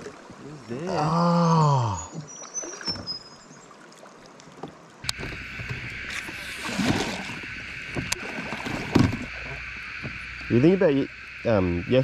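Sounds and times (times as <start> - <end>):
faint high chirps: 1.4 - 3.6
steady hiss: 5.1 - 12.0
knocks and low thumps: 7.8 - 10.5.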